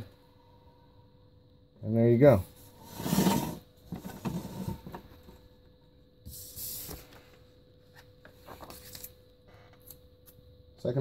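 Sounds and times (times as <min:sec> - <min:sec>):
wheel rim scraping: 0:02.6 - 0:05.1.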